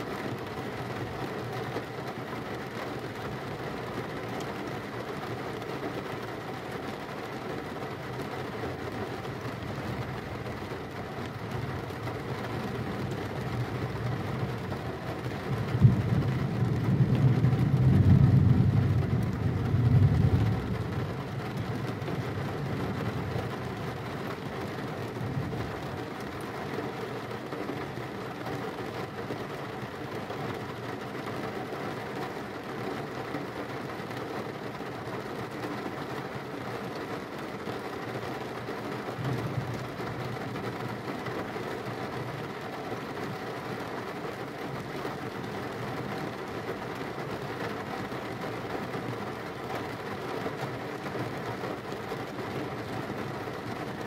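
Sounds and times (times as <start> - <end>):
steady rain: 0.0 - 54.0
thunderclap and rumble: 15.4 - 24.2.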